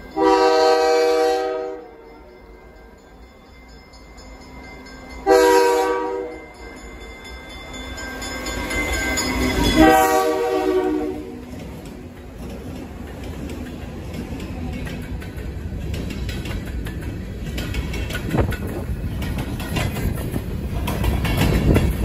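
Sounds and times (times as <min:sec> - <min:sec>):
locomotive air horn blasts: 0:00.2 - 0:01.9, 0:05.3 - 0:06.3, 0:09.8 - 0:11.4
train wheels clicking over rail joints: 0:06.5 - 0:22.0.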